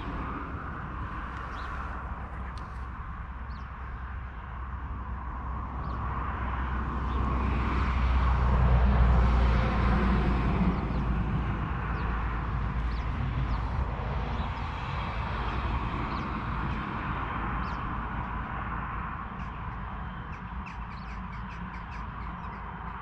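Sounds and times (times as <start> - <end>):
vehicle passing: 0.0 - 18.2.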